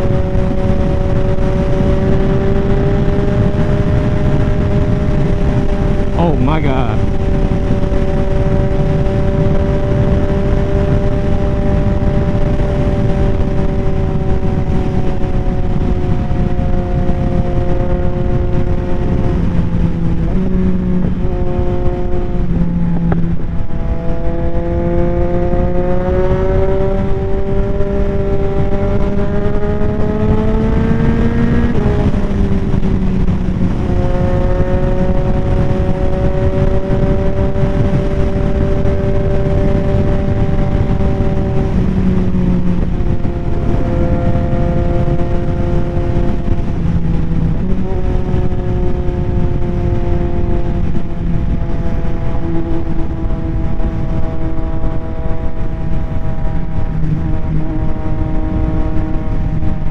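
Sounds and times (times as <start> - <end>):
motorcycle engine: 0.0 - 59.9
wind on microphone: 0.0 - 59.9.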